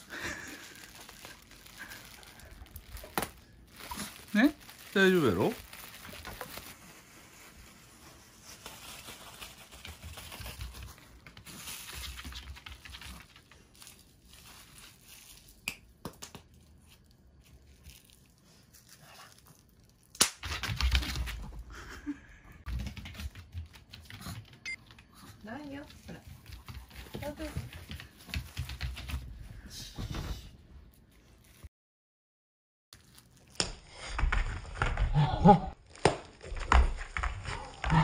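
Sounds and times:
bubble wrap crinkling: 0:00.0 - 0:20.2, 0:30.9 - 0:31.7, 0:33.0 - 0:34.9, 0:35.8 - 0:38.0
bubble wrap popping: 0:00.0 - 0:21.2, 0:33.0 - 0:38.0.

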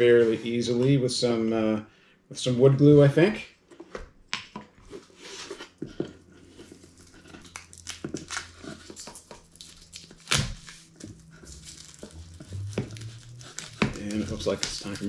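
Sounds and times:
knife scraping plastic wrap: 0:06.4 - 0:15.0
plastic film crinkling and tearing: 0:06.6 - 0:15.0.

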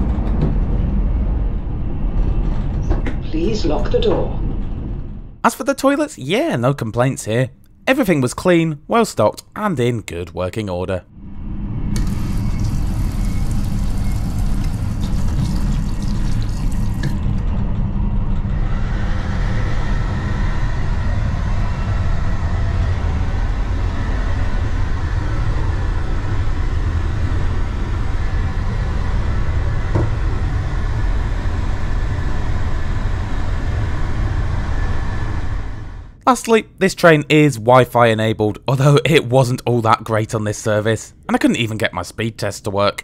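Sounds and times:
train running rumble: 0:00.0 - 0:09.2, 0:11.2 - 0:36.2
water running from tap: 0:12.0 - 0:17.2.

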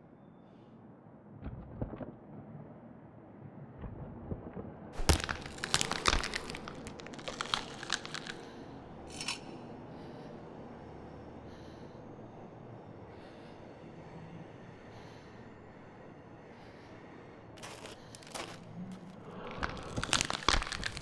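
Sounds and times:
low cave ambience: 0:00.0 - 0:21.0
rock and gravel crunching: 0:05.0 - 0:08.5, 0:17.6 - 0:21.0.

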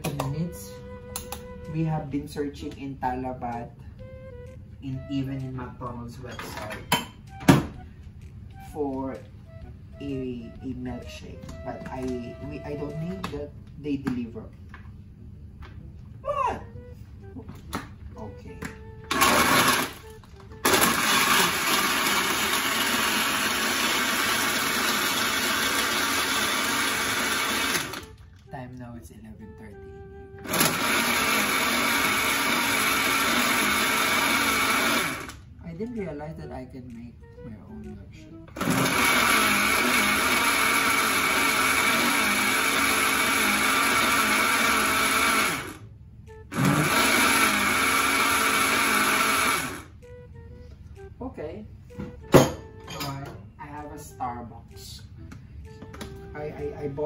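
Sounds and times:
blender running: 0:19.0 - 0:28.2, 0:30.4 - 0:35.4, 0:38.5 - 0:45.9, 0:46.5 - 0:50.0.

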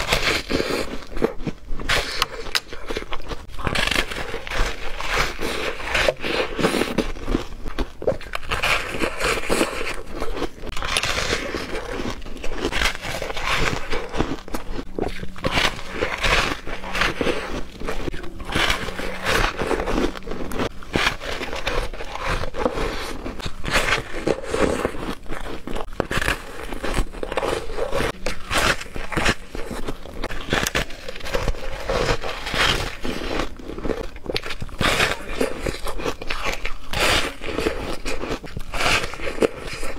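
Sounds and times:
crunching and chewing: 0:00.0 - 0:39.9.

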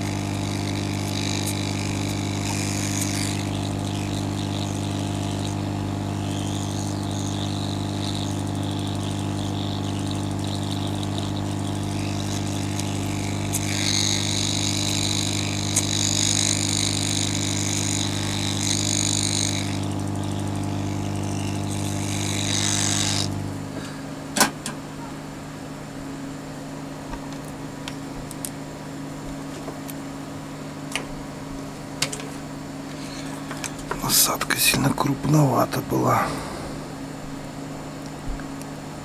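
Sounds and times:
hot air blower fan hum: 0:00.0 - 0:39.0.

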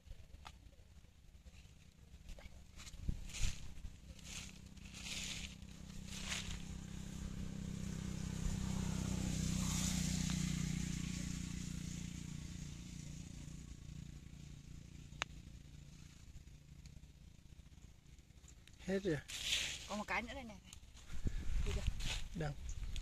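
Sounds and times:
passing engine hum: 0:01.7 - 0:18.5
blade scraping soil: 0:02.7 - 0:06.8, 0:19.2 - 0:20.2.

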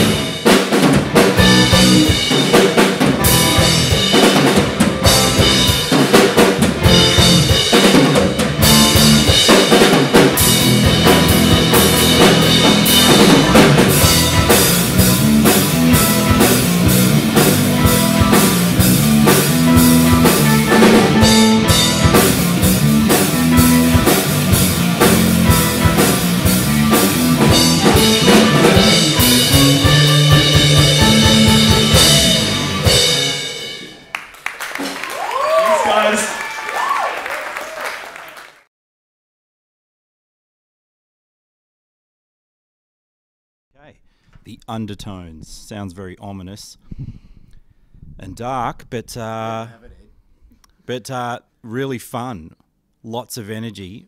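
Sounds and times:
rock band playing: 0:00.0 - 0:36.3.

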